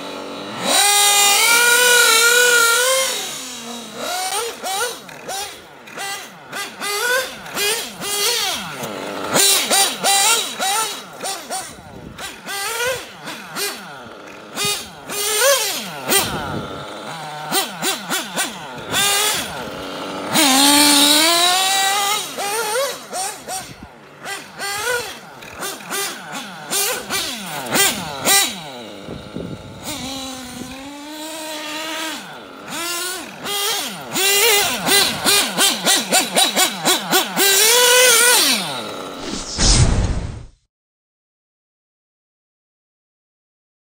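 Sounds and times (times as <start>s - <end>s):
model car engine revving: 0.0s - 39.6s
short deep boom: 39.3s - 40.6s.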